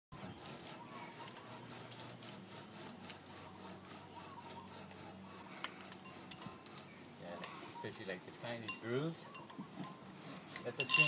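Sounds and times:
screen rasping on metal pipe: 0.2 - 7.5.

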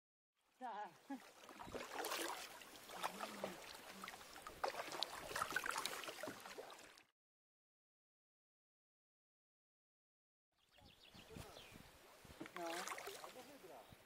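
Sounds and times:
paddle splashing in water: 1.0 - 7.1, 12.3 - 13.7.

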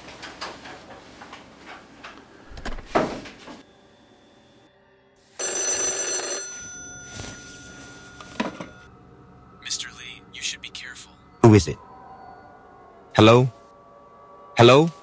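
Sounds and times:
telephone bell ringing: 5.2 - 8.9.

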